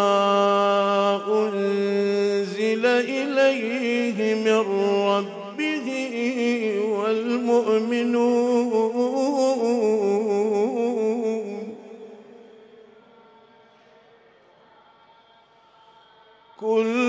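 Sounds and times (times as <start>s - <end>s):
man chanting a recitation: 0.0s - 12.8s, 16.0s - 17.0s.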